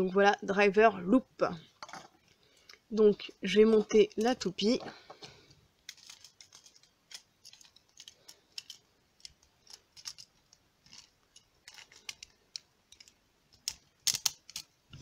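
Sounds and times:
plastic toy parts clicking: 3.7s - 4.5s, 5.8s - 14.8s.

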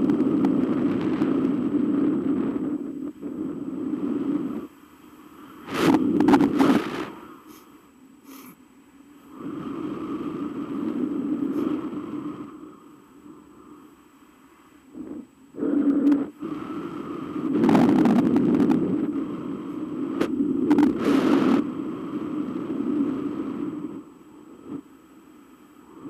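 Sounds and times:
wind buffeting microphone: 0.0s - 4.8s, 5.5s - 7.4s, 14.9s - 24.9s.

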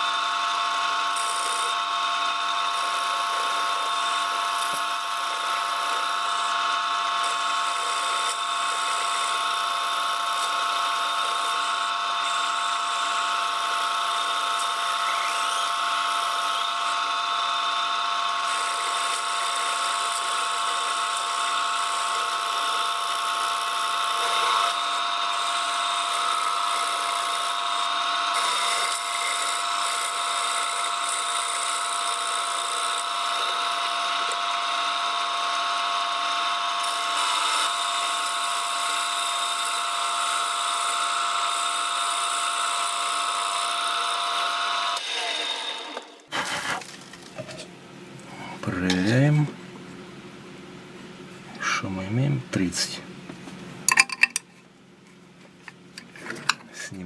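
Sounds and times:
metal lathe whining: 0.0s - 46.6s.

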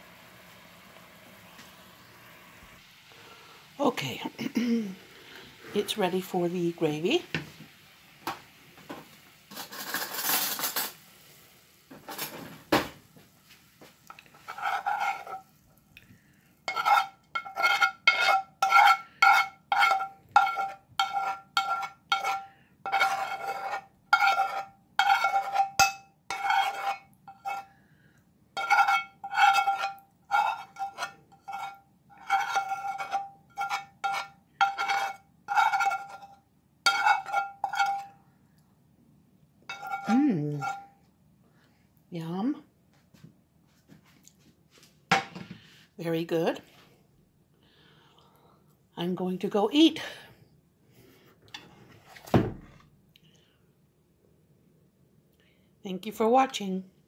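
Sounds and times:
spoon scraping a ringing skillet: 14.3s - 15.6s, 16.7s - 27.8s, 28.6s - 38.2s, 39.7s - 41.0s.

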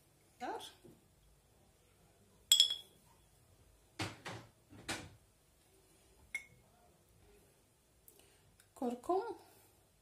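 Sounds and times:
kitchenware clink: 2.5s - 3.0s, 6.3s - 6.6s.

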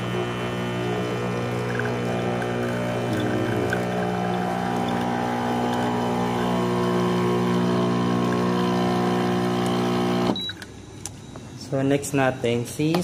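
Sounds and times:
water pouring into metal pitcher: 0.0s - 9.8s
espresso machine pump humming: 0.0s - 10.4s.

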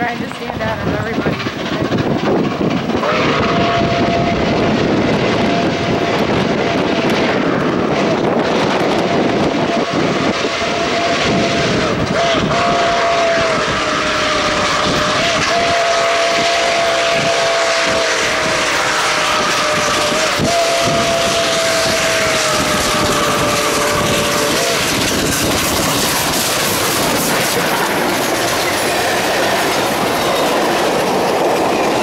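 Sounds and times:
moving train: 0.0s - 32.0s
rush of steam: 0.0s - 32.0s
steam locomotive chime whistle: 9.0s - 25.6s.

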